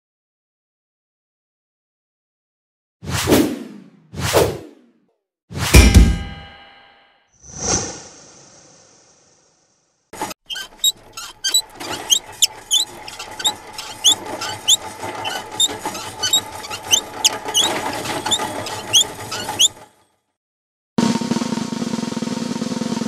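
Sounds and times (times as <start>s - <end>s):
cart rolling noise: 10.2s - 20.0s
cart wheels squeaking: 10.2s - 20.0s.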